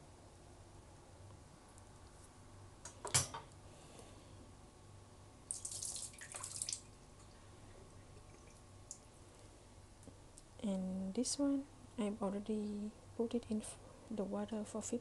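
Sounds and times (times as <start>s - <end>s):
water splashing and dripping: 5.5s - 7.0s.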